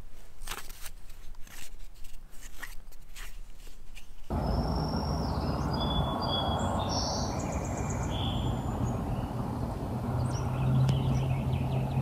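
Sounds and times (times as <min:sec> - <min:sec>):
low background noise: 0:00.0 - 0:12.0
songbirds chirping: 0:04.3 - 0:12.0.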